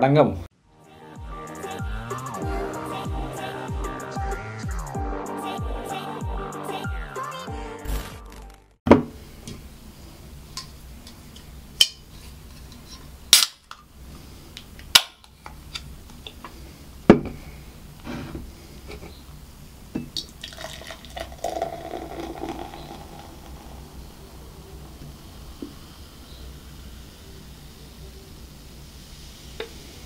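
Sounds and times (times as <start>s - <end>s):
can and glass clicking: 20.2s - 23.8s
drink pouring and fizzing: 20.2s - 26.9s.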